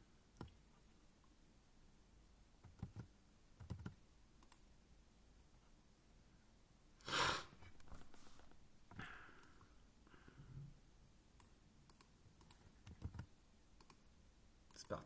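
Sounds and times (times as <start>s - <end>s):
mouse and keyboard clicks: 11.4s - 14.0s.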